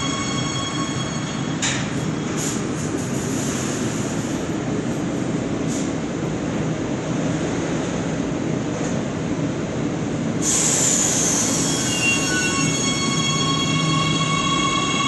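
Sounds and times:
shrill wheel squeal: 0.0s - 2.6s, 10.5s - 15.0s
train rumbling in tunnel: 0.0s - 15.0s.

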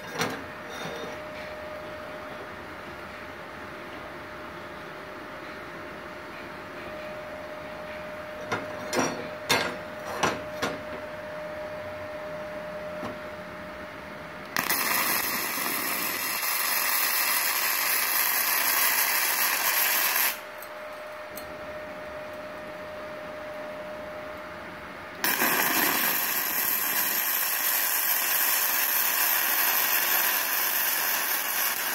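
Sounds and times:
welding arc hissing: 14.6s - 20.5s, 25.2s - 31.9s.

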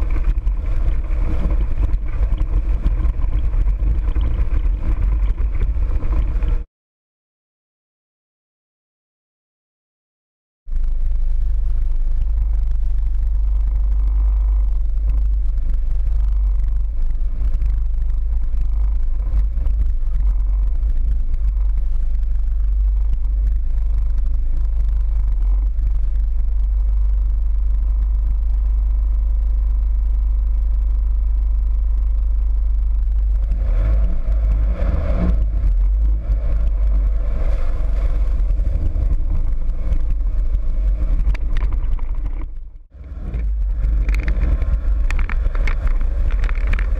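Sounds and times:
vehicle driving through creek: 0.0s - 6.7s, 33.3s - 46.9s
vehicle engine and tyres rumble: 0.0s - 6.7s, 10.7s - 46.9s.

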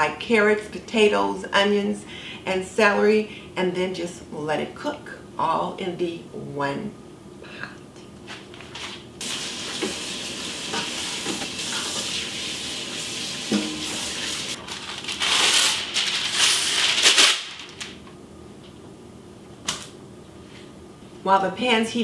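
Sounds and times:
faucet running into a sink: 9.2s - 14.5s.

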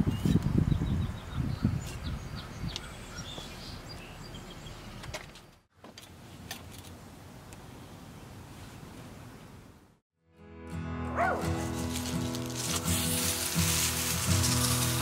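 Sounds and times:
small birds chirping: 0.0s - 5.6s
outdoor background noise: 0.0s - 10.0s.

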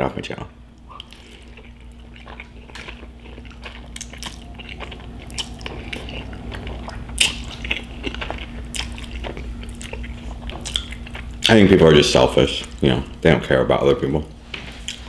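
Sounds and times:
faint steady hum: 0.0s - 15.0s
wet slurping and chewing: 0.8s - 11.6s.

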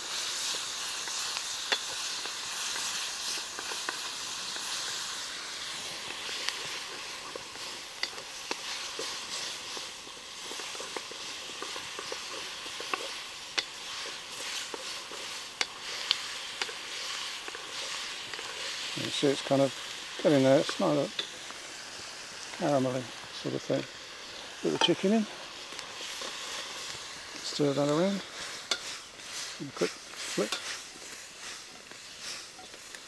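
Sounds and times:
food sizzling in a wok: 0.0s - 33.0s.

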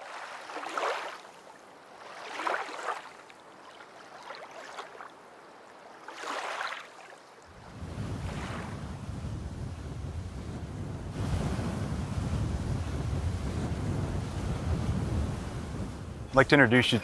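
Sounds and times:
wind buffeting microphone: 7.5s - 17.0s
water washing along a boat hull: 10.3s - 16.1s.

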